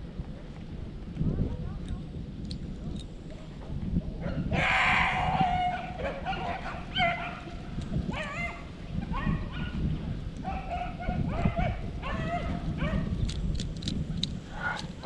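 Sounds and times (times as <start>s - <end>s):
wind rumble on microphone: 0.0s - 15.0s
hounds baying: 4.2s - 9.8s.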